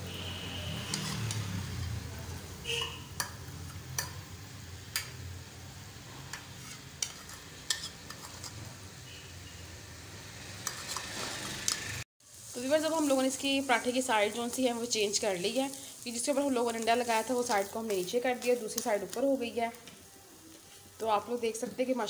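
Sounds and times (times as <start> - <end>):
flatbread frying with sizzle: 0.0 - 22.0
metal spoon scraping griddle: 0.6 - 2.1, 6.1 - 8.8, 10.5 - 12.0.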